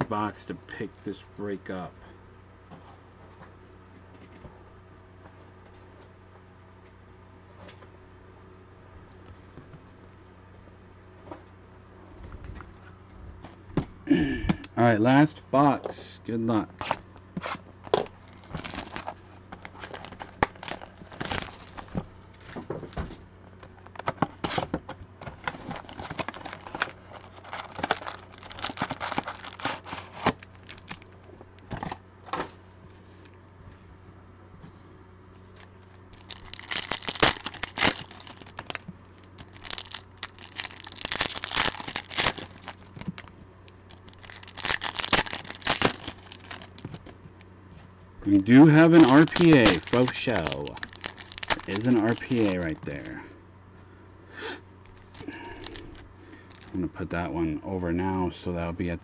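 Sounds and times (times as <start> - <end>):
foil packs crinkling: 17.8 - 22.6, 25.3 - 32.0, 35.5 - 47.1, 48.3 - 53.2, 54.9 - 56.8
cardboard box tearing open: 44.2 - 46.7.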